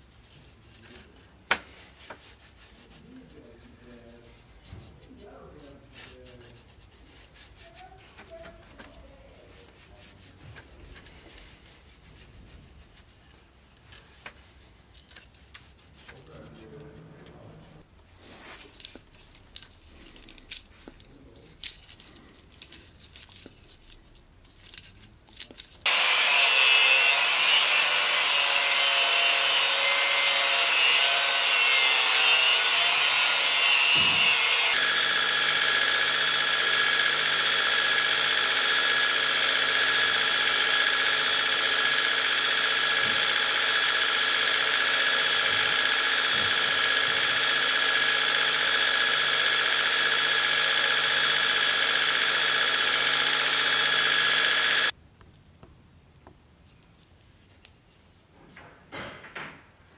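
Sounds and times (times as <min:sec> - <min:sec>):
belt grinder grinding steel: 0:25.8 - 0:54.9.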